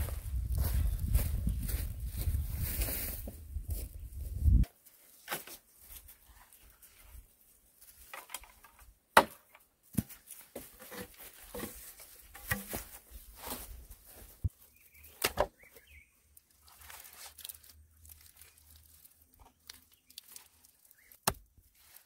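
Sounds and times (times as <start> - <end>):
bamboo clicking and knocking: 8.0 - 13.0, 15.0 - 15.9, 17.3 - 21.6.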